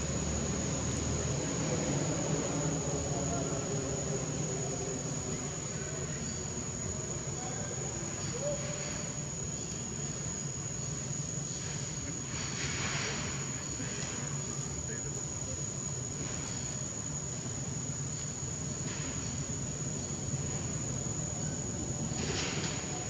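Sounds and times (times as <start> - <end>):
insects droning: 0.0 - 23.0.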